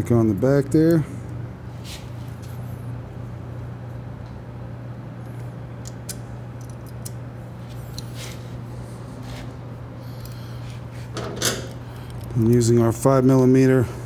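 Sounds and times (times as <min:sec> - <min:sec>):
low background hum: 0:00.0 - 0:14.0
small metal clicks: 0:05.8 - 0:07.2.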